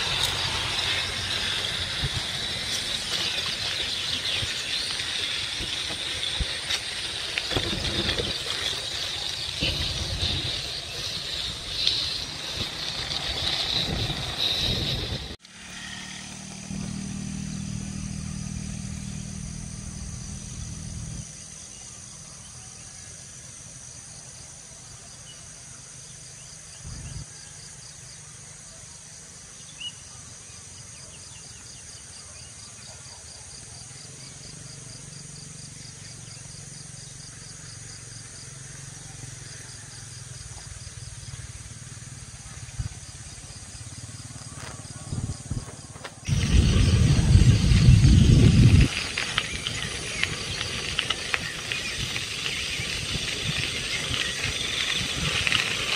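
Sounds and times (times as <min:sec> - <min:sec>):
insect trill: 0:00.0 - 0:55.9
low engine hum: 0:12.2 - 0:22.0, 0:40.6 - 0:55.8.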